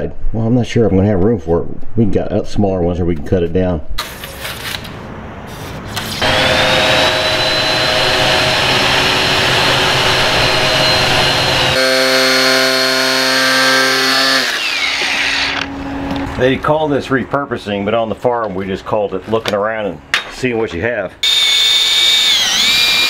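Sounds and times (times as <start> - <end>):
angle grinder on steel: 6.1 - 15.7, 21.2 - 23.0
power drill boring into steel: 6.2 - 15.7, 21.2 - 23.0.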